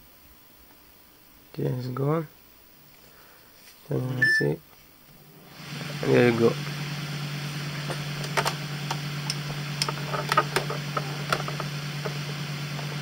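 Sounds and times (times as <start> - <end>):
fan motor humming: 3.9 - 13.0.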